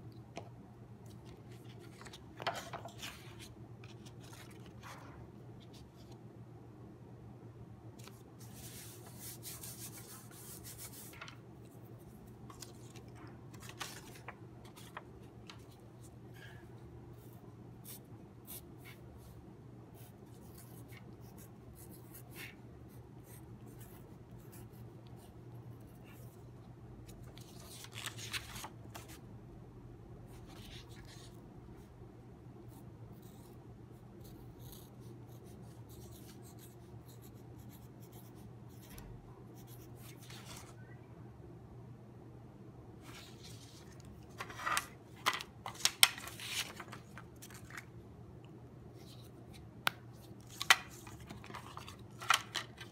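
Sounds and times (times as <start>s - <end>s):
paper rustling: 1.1s - 6.2s, 8.0s - 16.5s, 27.3s - 29.2s, 43.0s - 47.9s, 50.2s - 52.9s.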